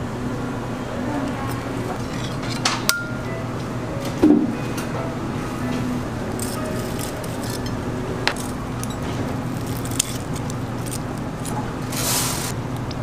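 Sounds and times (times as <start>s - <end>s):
steady background hum: 0.0s - 13.0s
metal tongs clicking and clinking: 6.4s - 9.0s, 9.6s - 11.6s.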